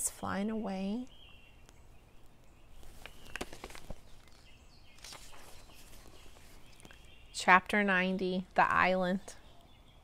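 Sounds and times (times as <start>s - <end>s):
book handling clicks and rustles: 2.8s - 7.0s.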